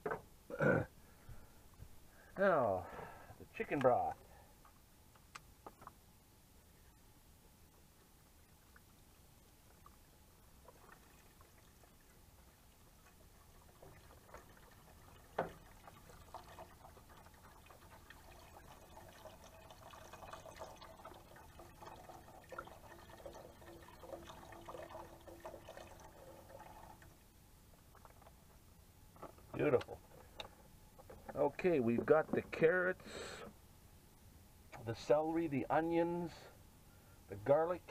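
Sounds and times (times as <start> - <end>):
broth pouring into a pot: 12.9 - 27.1.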